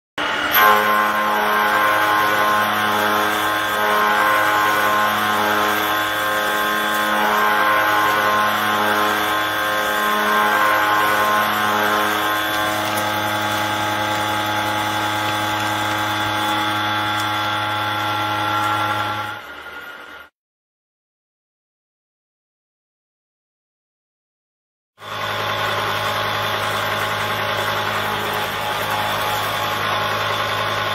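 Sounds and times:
milling machine whine: 0.2s - 20.3s, 25.0s - 30.9s.

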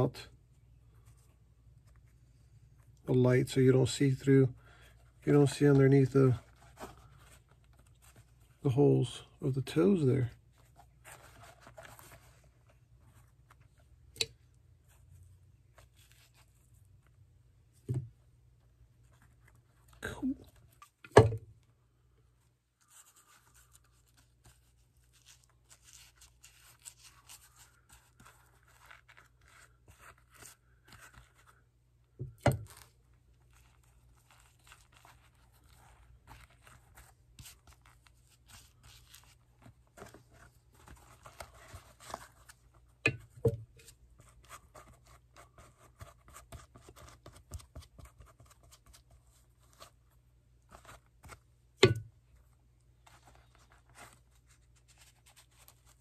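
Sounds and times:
leather scratching and rustling: 10.4s - 13.9s, 15.7s - 17.1s, 22.8s - 31.5s, 32.6s - 42.9s.

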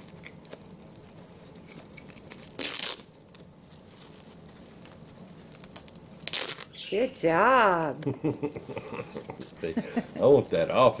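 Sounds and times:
fastener ripping open: 2.3s - 3.1s, 5.4s - 6.7s.

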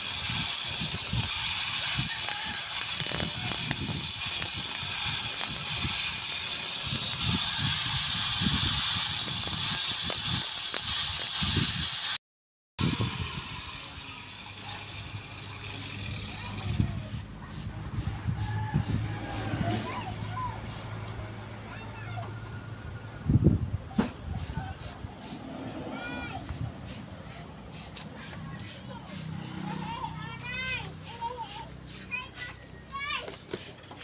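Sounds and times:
angle grinder whining: 0.0s - 12.2s, 12.8s - 17.2s.

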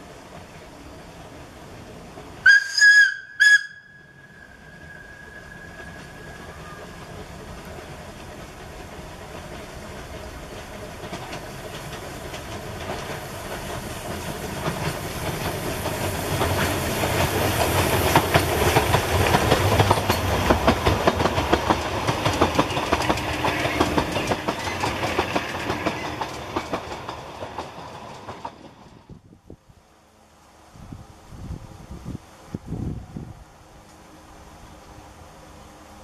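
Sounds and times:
steam train passing: 0.0s - 36.0s
wheels clacking over rail joints: 1.7s - 29.2s.

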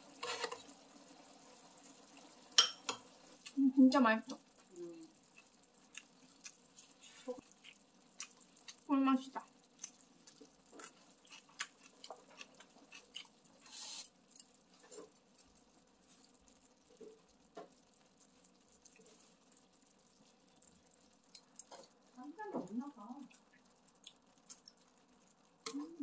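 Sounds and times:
soft chewing: 4.3s - 22.2s, 23.2s - 26.0s
brief hiss: 13.7s - 14.1s.

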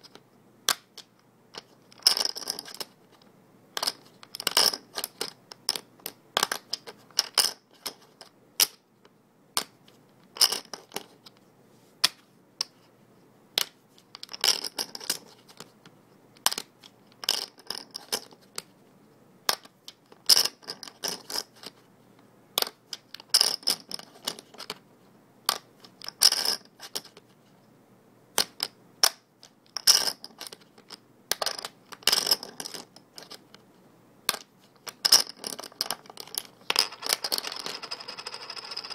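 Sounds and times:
poker chips clicking: 35.0s - 38.9s.

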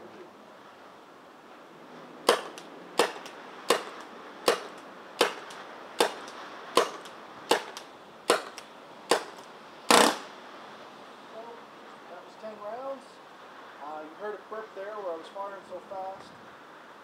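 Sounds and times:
paintball pistol shots: 2.3s - 10.3s.

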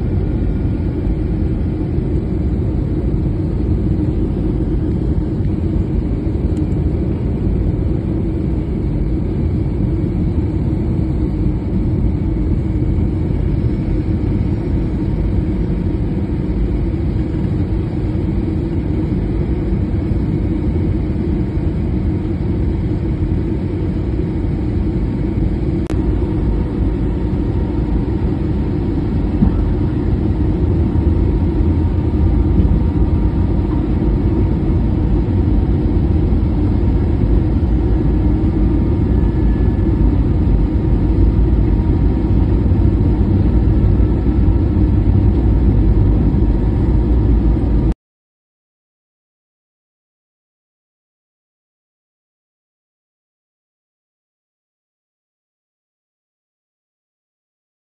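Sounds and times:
airliner engines rumbling: 0.0s - 48.0s
rushing airflow: 24.4s - 47.9s.

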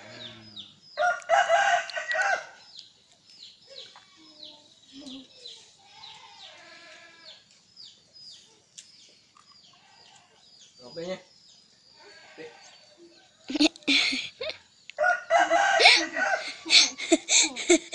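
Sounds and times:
rooster crowing: 0.0s - 2.6s, 15.0s - 17.7s.

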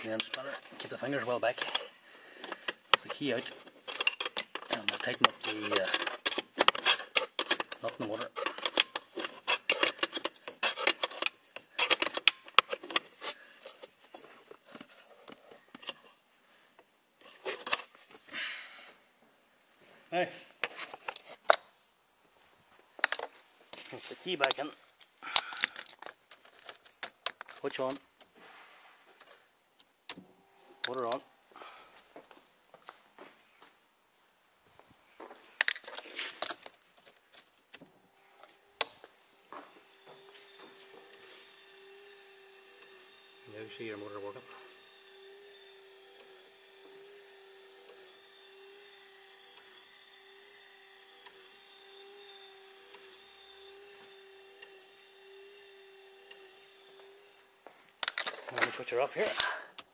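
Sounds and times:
spanner clicking on a nut: 3.9s - 13.1s.

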